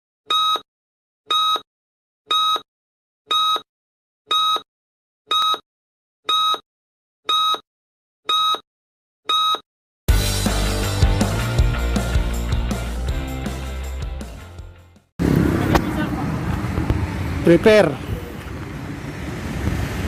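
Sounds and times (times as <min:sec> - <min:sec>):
short electronic beeps: 0:00.3 - 0:00.7, 0:01.3 - 0:01.7, 0:02.3 - 0:02.7, 0:03.3 - 0:03.7, 0:04.3 - 0:04.7, 0:05.3 - 0:05.6, 0:06.3 - 0:06.6, 0:07.3 - 0:07.7, 0:08.3 - 0:08.7, 0:09.3 - 0:09.7.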